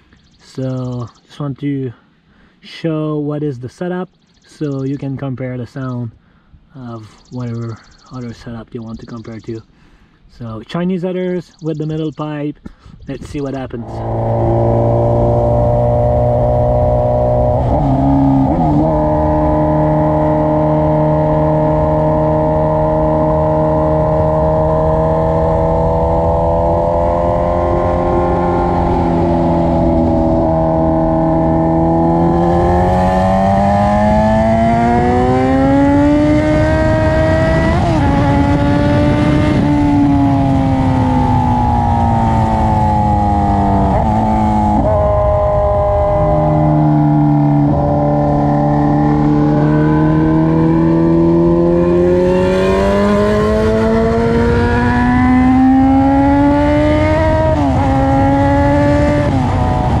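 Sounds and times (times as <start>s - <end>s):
motorcycle engine revving hard: 13.8s - 60.0s.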